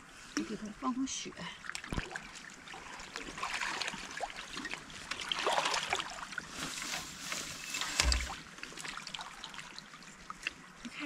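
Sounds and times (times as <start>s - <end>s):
river water splashing: 1.6s - 10.0s
thump: 7.9s - 8.4s.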